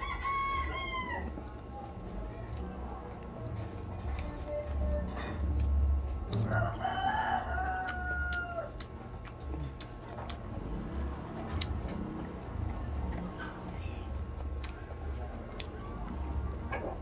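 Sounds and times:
rooster crowing: 0.0s - 1.4s, 6.4s - 8.8s
wet mouth clicks and chewing: 1.4s - 17.0s.

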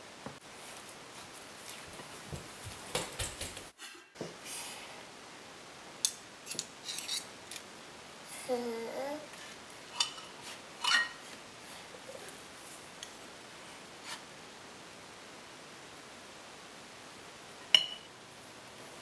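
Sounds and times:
spoons clinking on glass bowl: 10.0s - 11.2s, 17.7s - 18.1s.

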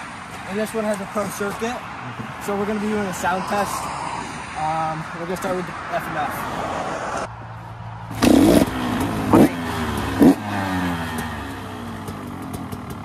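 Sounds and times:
two-stroke motorcycle engine revving: 8.1s - 13.0s.

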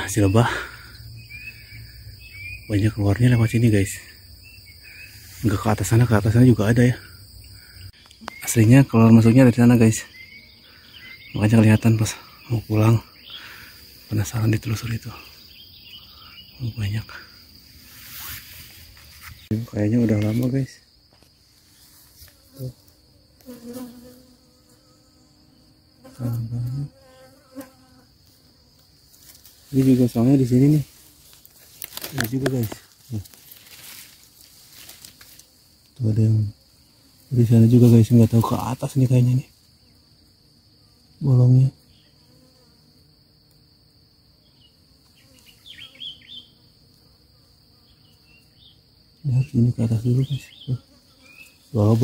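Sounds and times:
crickets trilling: 0.0s - 52.0s
bees buzzing: 3.6s - 19.5s, 20.9s - 38.4s, 50.2s - 52.0s.

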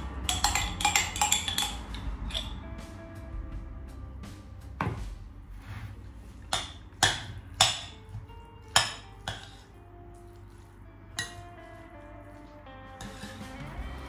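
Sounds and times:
spoon scraping ceramic bowl: 0.3s - 2.6s, 8.7s - 9.7s, 13.0s - 13.6s.

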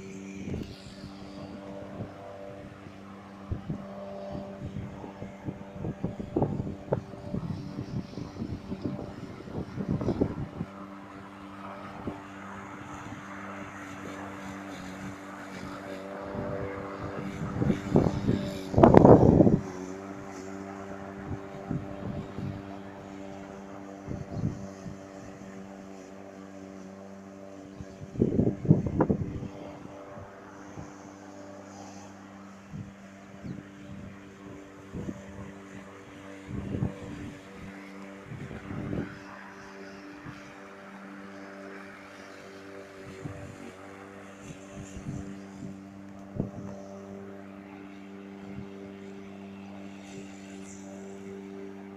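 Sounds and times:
wind buffeting microphone: 0.0s - 41.9s, 42.5s - 51.9s
electric lawn mower humming: 0.0s - 51.9s.

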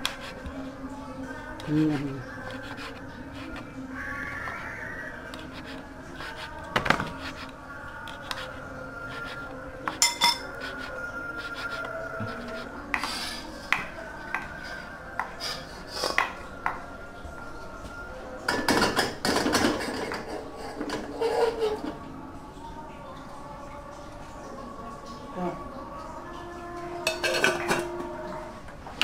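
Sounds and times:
utensils clinking against dishes: 9.2s - 11.0s, 18.5s - 22.0s, 27.0s - 28.1s.

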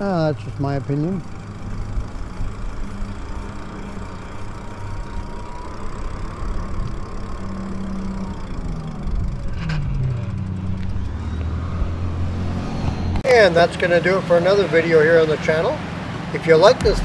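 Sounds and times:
faint motor whine: 0.0s - 9.6s.

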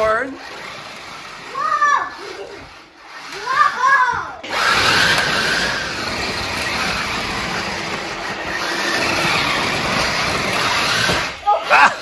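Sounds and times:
toy truck motor whirring: 0.0s - 12.0s
rubber tyres rolling on hardwood: 4.6s - 11.5s.

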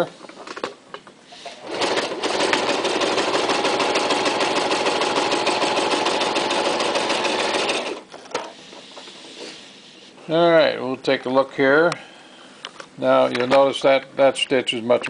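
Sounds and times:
sewing machine stitching: 1.6s - 8.4s.

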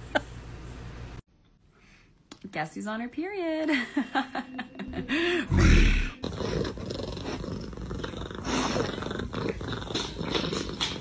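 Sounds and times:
cat purring: 6.2s - 11.0s.

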